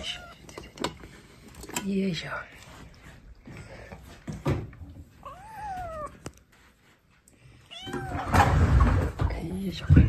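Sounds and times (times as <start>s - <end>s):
kitten meowing: 5.2s - 6.2s, 7.7s - 8.4s.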